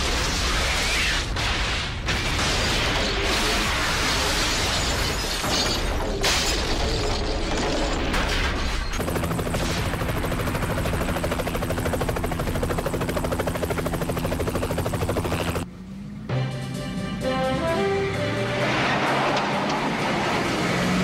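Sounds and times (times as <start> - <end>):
explosion and fire blast: 0.0 - 6.9
helicopter rotor beating: 8.8 - 15.7.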